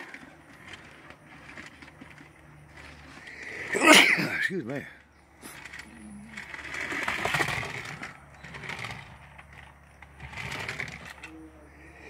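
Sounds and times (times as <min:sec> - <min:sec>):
toy car electric motor whirring: 0:00.0 - 0:03.7, 0:05.3 - 0:11.5.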